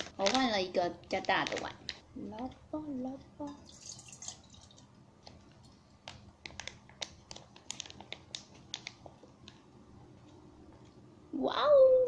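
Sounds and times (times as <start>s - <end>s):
plastic bag crinkling: 0.0s - 2.0s, 3.6s - 9.7s.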